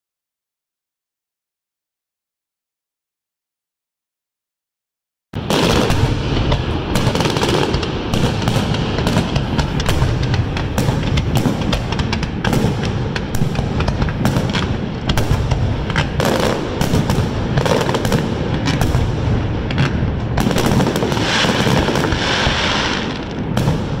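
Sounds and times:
fireworks bursting with sharp bangs: 5.4s - 24.0s
hissing crackle of fireworks: 5.4s - 24.0s.

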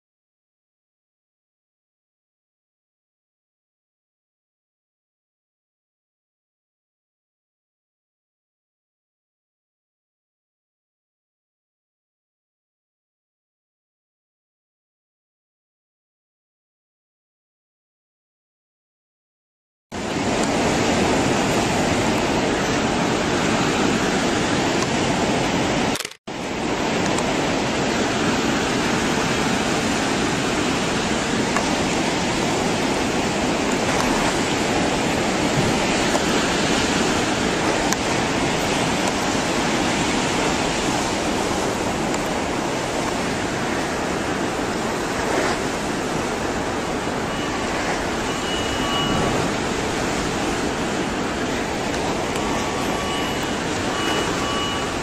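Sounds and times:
floodwater rushing: 20.0s - 55.0s.

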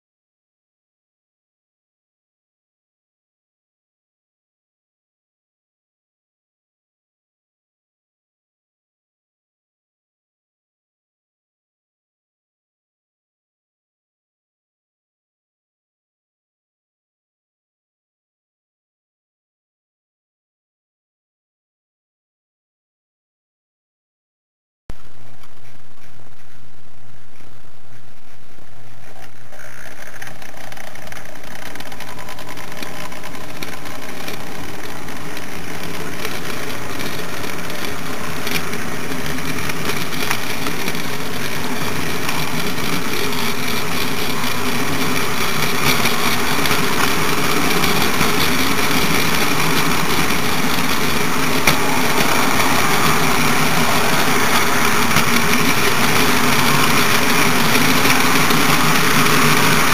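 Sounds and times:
model train motor whirring: 27.2s - 59.9s.

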